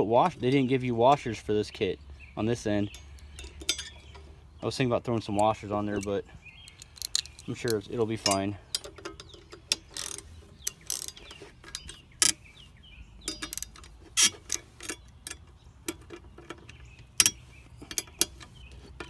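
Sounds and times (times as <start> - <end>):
socket ratchet clicking: 5.4 - 7.8, 8.7 - 12.4, 13.2 - 19.0.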